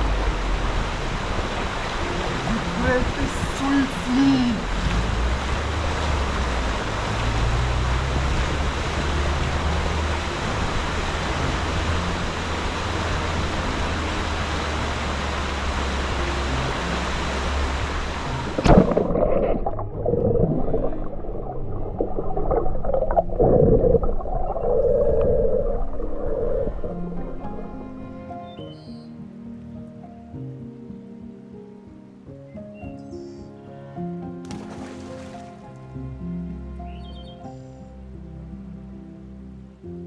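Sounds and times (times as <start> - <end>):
river rushing over rapids: 0.0 - 22.6
soft background music: 0.0 - 24.9, 25.8 - 40.0.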